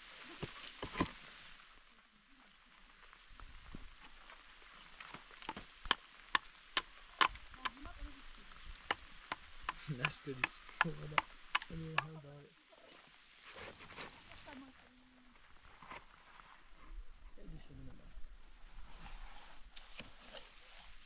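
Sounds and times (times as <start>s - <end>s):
hammer tapping concrete blocks: 8.9s - 12.1s.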